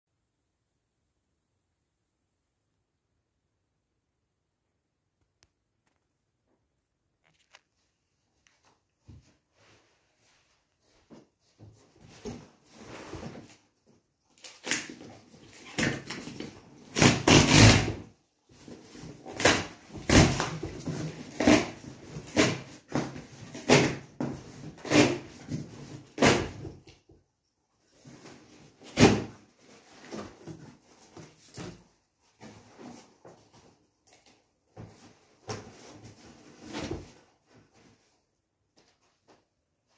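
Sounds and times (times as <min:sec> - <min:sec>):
cardboard box tearing: 0:18.9 - 0:26.6.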